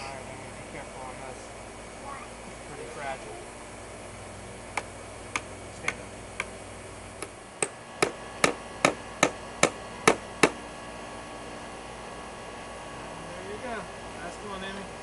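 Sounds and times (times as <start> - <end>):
hammer hitting nail into wood: 7.2 - 10.6.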